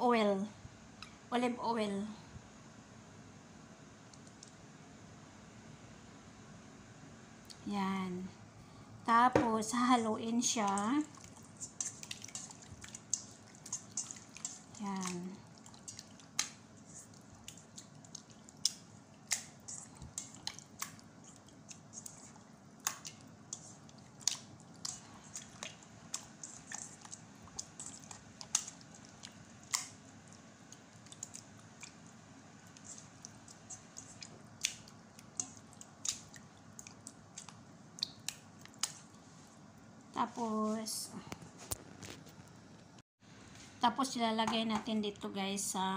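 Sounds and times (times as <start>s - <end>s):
wet squelches of hand mixing: 9.5s - 41.0s.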